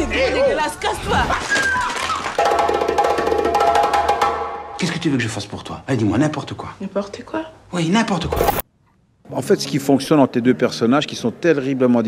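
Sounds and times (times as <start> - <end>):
wood-block percussion: 2.4 - 4.9.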